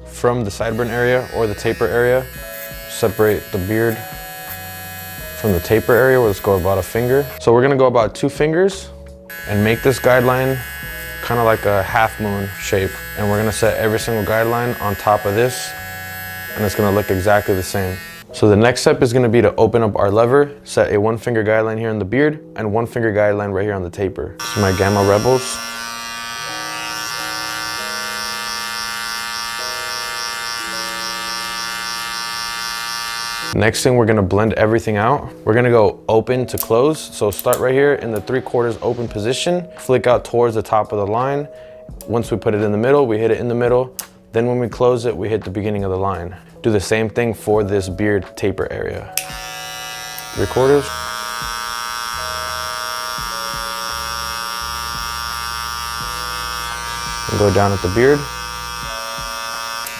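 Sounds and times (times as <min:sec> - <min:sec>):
hair clipper buzzing: 0:00.6 - 0:07.4, 0:09.3 - 0:18.3, 0:24.4 - 0:33.6, 0:49.2 - 0:59.9.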